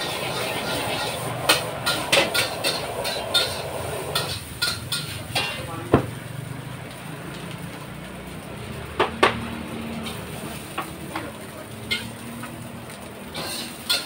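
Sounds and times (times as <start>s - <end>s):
metal spatula clanking on wok: 0.0s - 5.8s, 10.0s - 12.4s, 13.3s - 14.0s.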